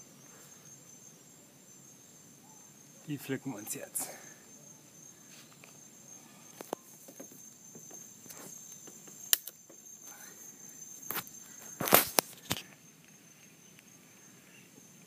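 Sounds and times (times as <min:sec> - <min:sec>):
high insect trill: 0:00.0 - 0:15.0
leaves rustling: 0:03.0 - 0:14.5
fruit snapping off branch: 0:09.3 - 0:09.6, 0:11.1 - 0:12.6.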